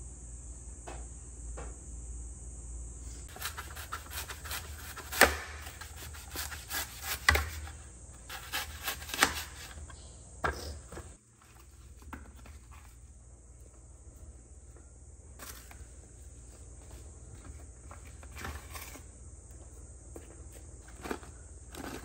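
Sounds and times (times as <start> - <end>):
knife slicing apple: 3.3 - 9.9.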